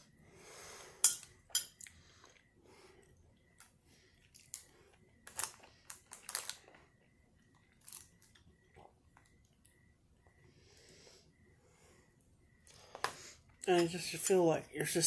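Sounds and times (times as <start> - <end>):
person chewing food: 0.7 - 11.0.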